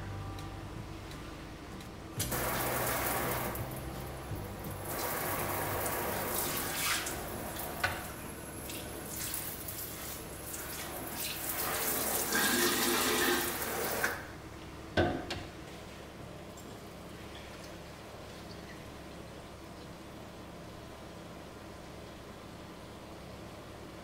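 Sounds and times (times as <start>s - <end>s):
water spraying into steel sink: 2.2s - 14.2s.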